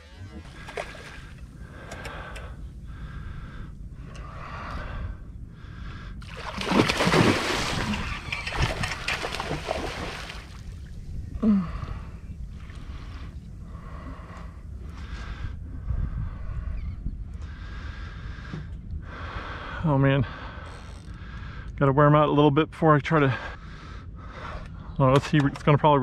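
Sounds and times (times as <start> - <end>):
heavy regular breathing: 0.3 - 9.0, 11.3 - 21.8, 23.2 - 25.0
fish thrashing and splashing: 6.2 - 10.8.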